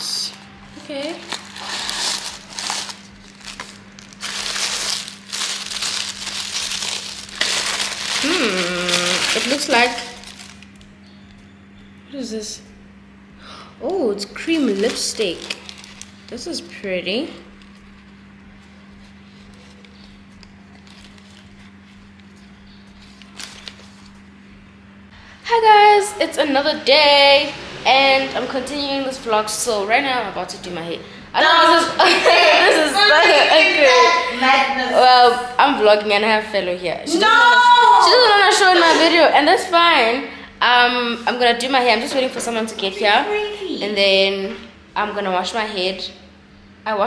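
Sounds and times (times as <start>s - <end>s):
low hum: 0.0s - 35.6s
tissue paper crinkling: 0.8s - 10.8s, 14.6s - 16.8s, 18.9s - 24.2s.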